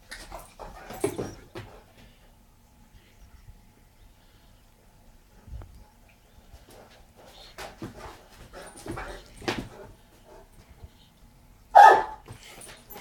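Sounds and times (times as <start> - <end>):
dog barking: 11.7 - 12.3.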